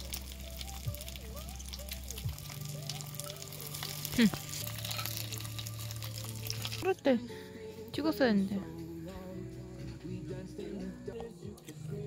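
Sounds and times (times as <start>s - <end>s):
oil sizzling in a pan: 0.0s - 6.9s
soft music: 0.0s - 12.0s.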